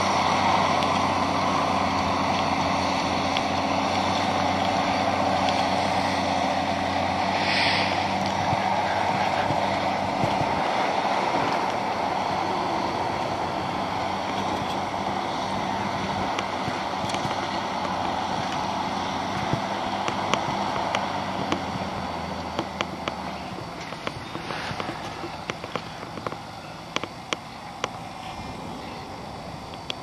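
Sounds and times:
tractor engine running: 0:00.0 - 0:30.0
sharp clicks: 0:16.3 - 0:21.7, 0:22.4 - 0:28.0.

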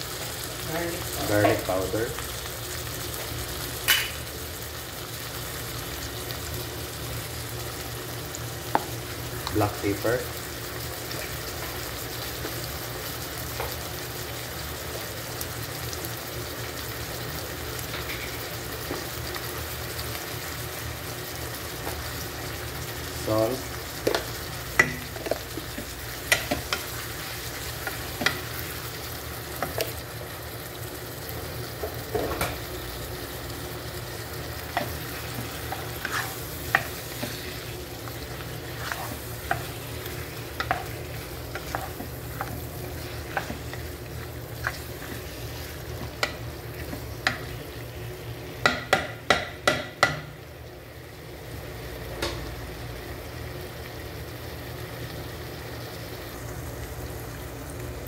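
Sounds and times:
food sizzling in a pan: 0:00.0 - 0:58.0
spatula scraping and knocking pan: 0:34.7 - 0:43.9.

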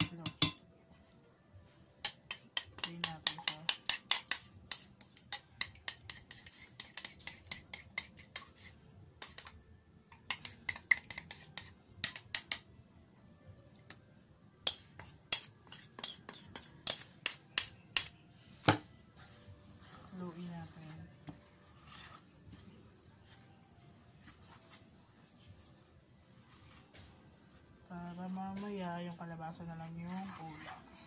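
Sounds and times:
spoon beating eggs in bowl: 0:02.0 - 0:12.7, 0:14.7 - 0:18.2.

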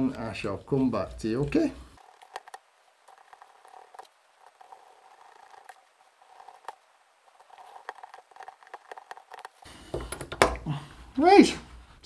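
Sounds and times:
handling knocks: 0:09.8 - 0:10.7.

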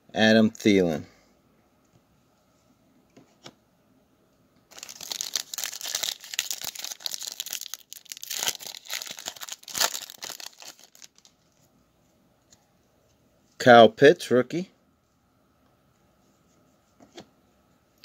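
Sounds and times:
foil pack crinkling: 0:04.7 - 0:11.4.

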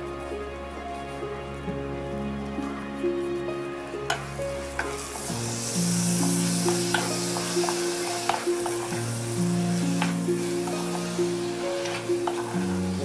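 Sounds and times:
background music: 0:00.0 - 0:13.0
food sizzling in a pot: 0:04.1 - 0:13.0
wooden spatula scraping pot: 0:06.4 - 0:09.4, 0:10.0 - 0:13.0.

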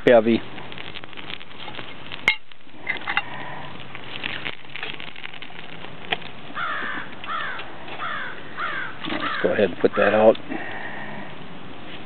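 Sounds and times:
open flame burning: 0:00.0 - 0:12.0
crow cawing: 0:06.6 - 0:10.1.

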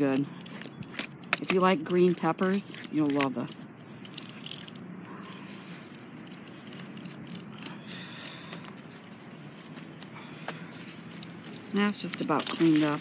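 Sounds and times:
knife scraping cactus pad: 0:00.0 - 0:03.6.

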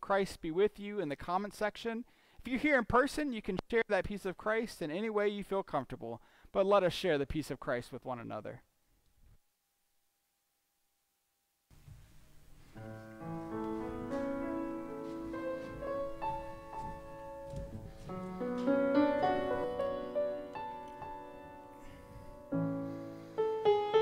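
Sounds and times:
piano playing slow chords: 0:12.7 - 0:24.0.

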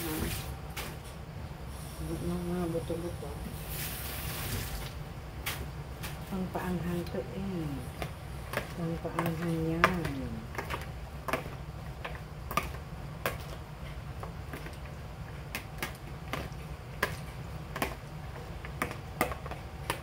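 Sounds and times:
steady low hum: 0:00.0 - 0:20.0
spoons tapping plastic bowl: 0:08.0 - 0:13.5, 0:15.5 - 0:20.0.

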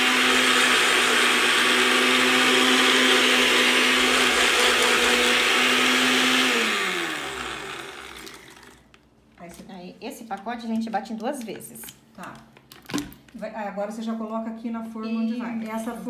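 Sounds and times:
blender grinding biscuits: 0:00.0 - 0:09.0.

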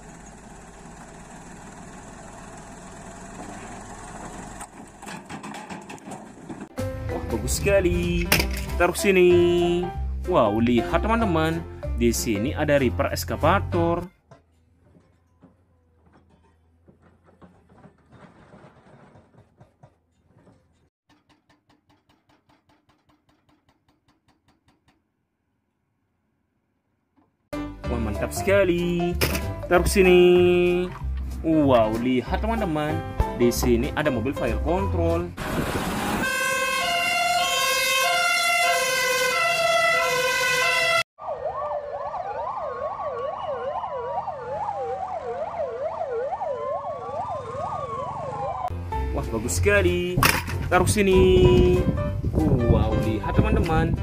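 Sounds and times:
low engine drone: 0:00.0 - 0:05.0
two-tone siren: 0:36.0 - 0:48.7
wailing siren: 0:36.0 - 0:48.7
yelp siren: 0:36.2 - 0:48.7.

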